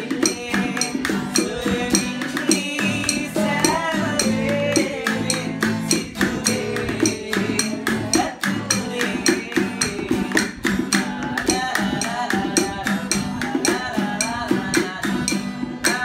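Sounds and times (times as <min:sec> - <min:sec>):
acoustic guitar strumming: 0:00.0 - 0:16.0
man singing: 0:00.0 - 0:16.0.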